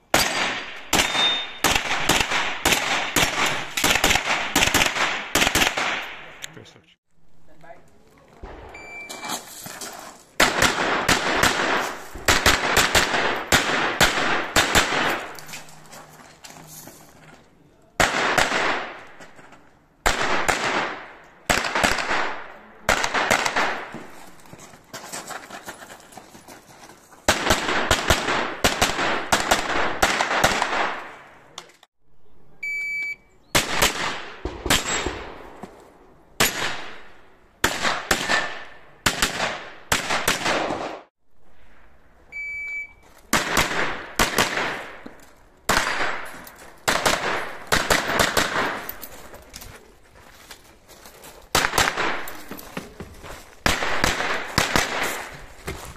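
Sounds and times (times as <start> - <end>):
rapid gunshots: 0.1 - 6.3, 10.4 - 15.2, 27.3 - 31.1, 53.6 - 55.3
shot timer beep: 8.7 - 9.2, 32.6 - 33.3, 42.3 - 43.0.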